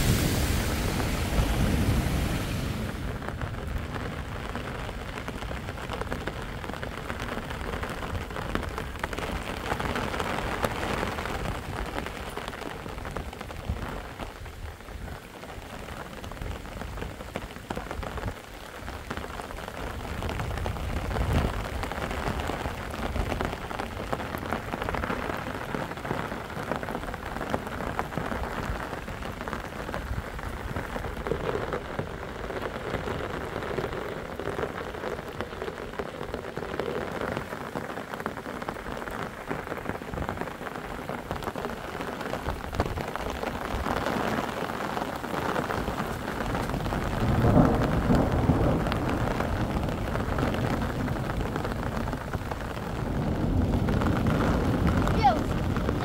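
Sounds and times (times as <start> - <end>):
low rush: 0.0 - 3.2
steady rain patter: 0.0 - 56.0.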